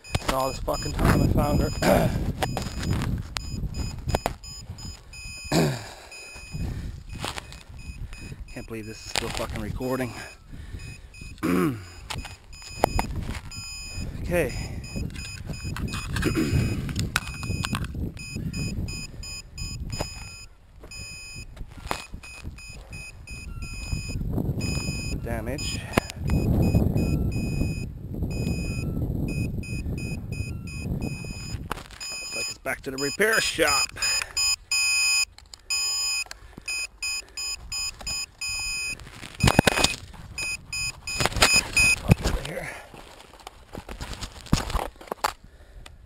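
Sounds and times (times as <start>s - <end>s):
electronic beeper beeping: 0.0s - 9.2s, 22.3s - 42.2s.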